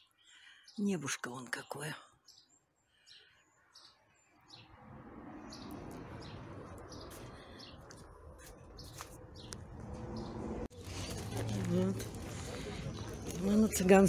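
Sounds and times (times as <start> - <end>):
small birds chirping: 0.0 - 4.8, 5.4 - 14.0.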